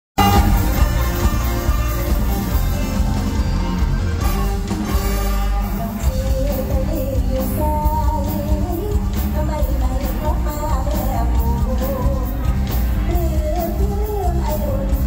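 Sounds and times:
band music through speakers: 0.2 - 15.0
lead melody line: 0.2 - 15.0.

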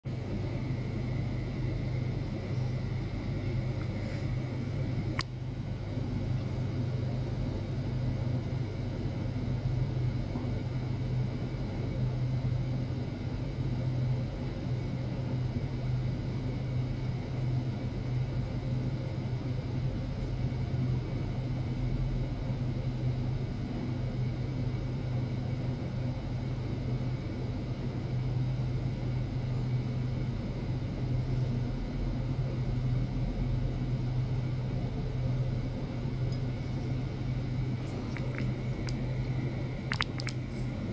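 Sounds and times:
faint high steady tones: 0.0 - 9.2, 37.6 - 40.9
low rumbling hum: 0.0 - 9.2, 36.6 - 40.9.

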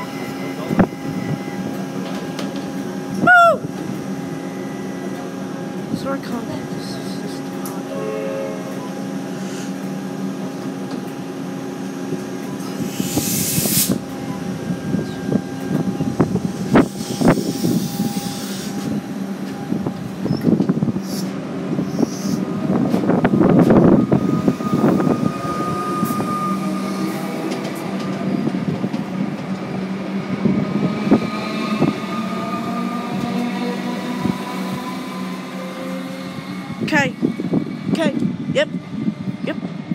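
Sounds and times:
electric train humming: 0.0 - 39.9
air hiss: 12.9 - 14.0.

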